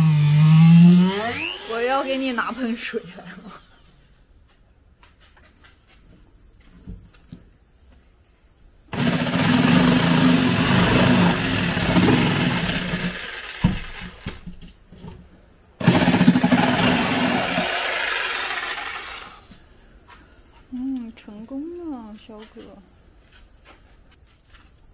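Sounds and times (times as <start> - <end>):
hissing wood cutting: 0.0 - 3.9, 8.9 - 14.4, 15.8 - 19.6
power tool motor hum: 0.0 - 3.9, 8.9 - 14.4, 15.8 - 19.6.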